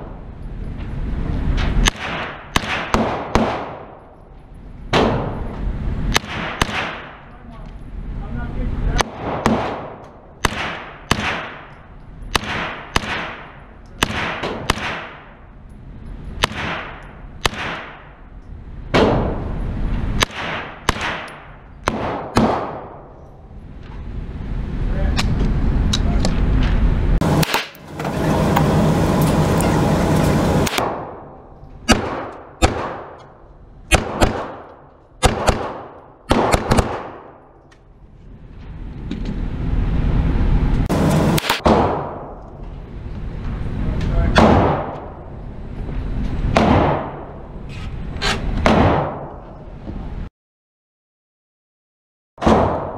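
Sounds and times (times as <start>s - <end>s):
gunshots echoing indoors: 1.8s - 4.0s, 6.1s - 7.3s, 9.0s - 15.4s, 16.4s - 18.2s, 20.2s - 23.1s, 30.5s - 33.3s, 33.9s - 37.4s
electric target carrier whirring: 23.5s - 30.8s, 38.4s - 41.6s.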